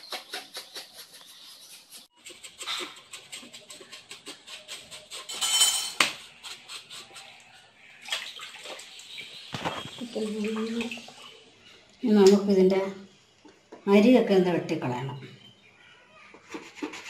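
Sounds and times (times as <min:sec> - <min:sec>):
knife scraping wooden board: 0:00.0 - 0:07.5, 0:16.3 - 0:17.0
knife scraping fish skin: 0:01.4 - 0:05.4, 0:06.0 - 0:07.5.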